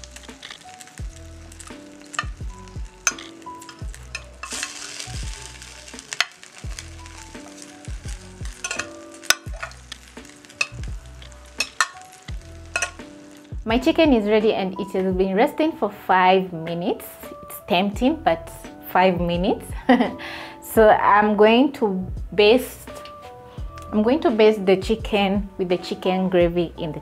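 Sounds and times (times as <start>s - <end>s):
background music with beat: 0.0s - 14.4s, 22.0s - 24.0s
juices sizzling: 0.0s - 15.0s
tongs scraping glass dish: 3.0s - 5.2s, 8.6s - 9.8s, 12.7s - 13.0s.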